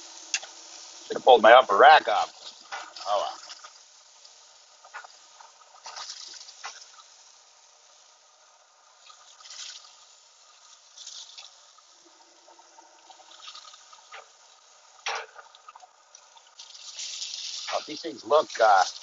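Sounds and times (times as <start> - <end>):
chicken wings sizzling on grill: 0.0 - 19.0
tongs scraping grill grate: 15.0 - 19.0.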